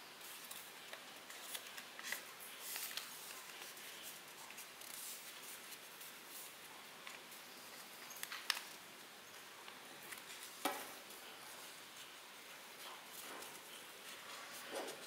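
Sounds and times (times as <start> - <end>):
paper rustling and crinkling: 0.2 - 8.8.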